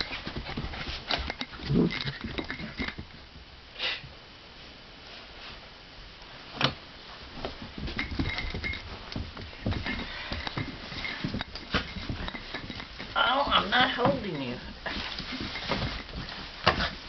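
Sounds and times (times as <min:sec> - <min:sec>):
dogs pattering on carpet: 0:00.0 - 0:03.4, 0:07.0 - 0:17.0.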